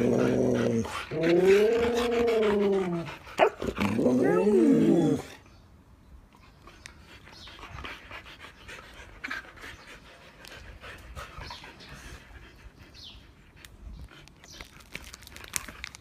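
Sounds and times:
dogs panting quietly: 6.3s - 15.7s.

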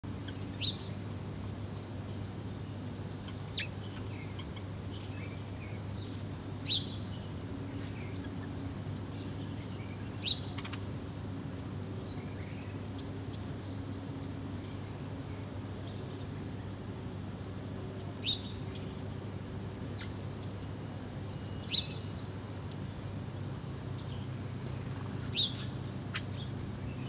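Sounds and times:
sparrows chirping: 0.1s - 1.0s, 2.7s - 11.0s, 11.9s - 13.0s, 18.1s - 19.1s, 19.8s - 20.2s, 21.1s - 23.0s, 23.8s - 27.0s.

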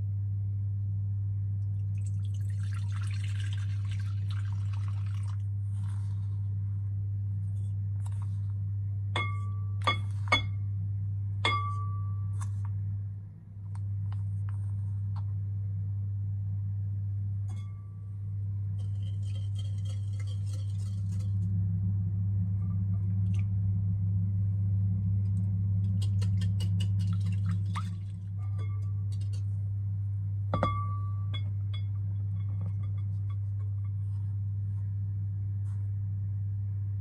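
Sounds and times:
steady low hum: 0.0s - 37.0s
sharp clink on glass bowl: 11.4s - 12.2s.

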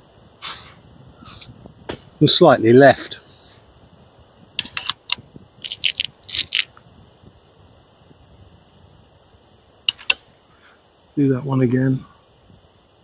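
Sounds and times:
air rifle action clicking: 4.6s - 6.8s, 9.9s - 10.2s.

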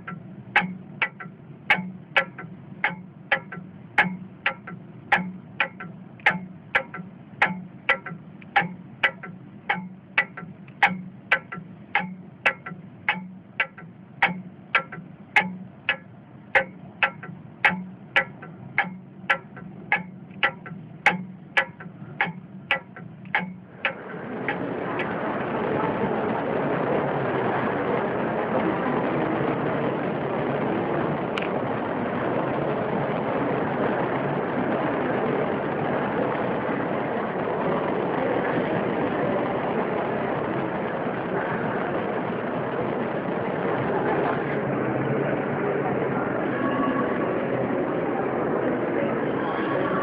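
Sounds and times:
clock ticking: 0.0s - 25.1s.

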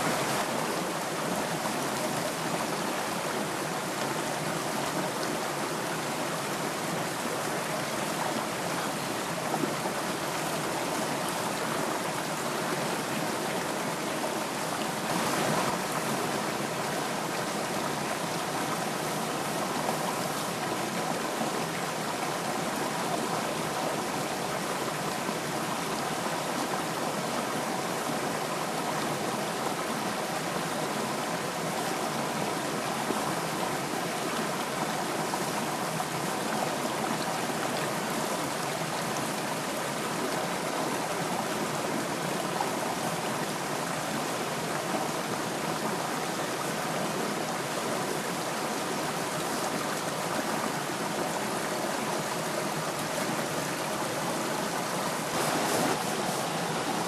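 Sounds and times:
stream splashing over stones: 31.3s - 57.0s.

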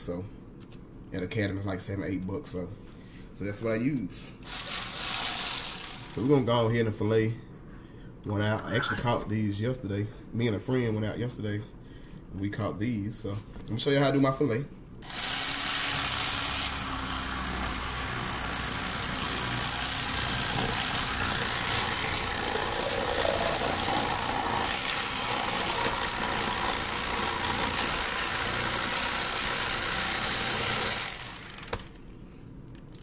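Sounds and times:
electric fillet knife sawing: 4.5s - 6.2s, 15.0s - 32.0s.

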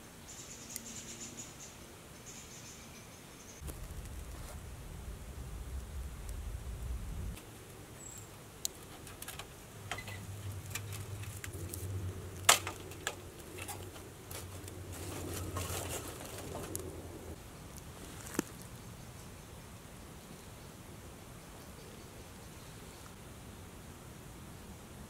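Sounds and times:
fire crackling: 3.6s - 18.8s.

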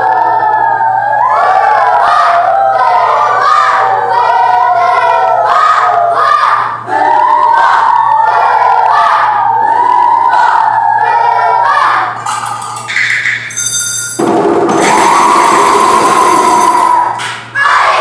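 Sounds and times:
children's choir singing: 0.0s - 13.0s, 14.6s - 18.0s.

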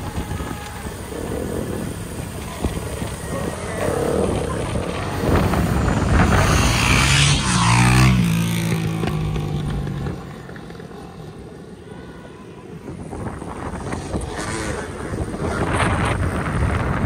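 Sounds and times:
wind and road noise: 0.0s - 17.0s
vehicle engine passing by: 3.1s - 11.4s.

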